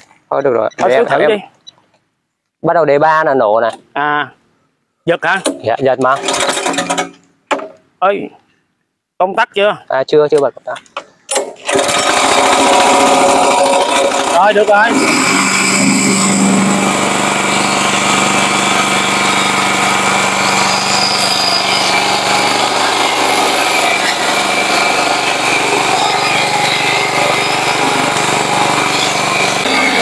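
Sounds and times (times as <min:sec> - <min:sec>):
small petrol engine running: 0:11.6 - 0:30.0.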